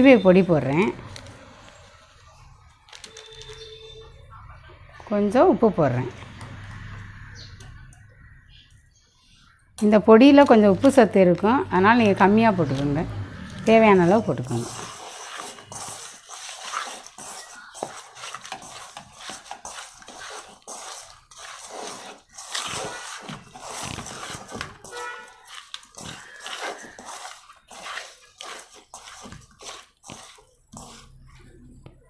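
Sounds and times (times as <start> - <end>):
wet squishing of hands mixing fish: 10.3 - 32.0.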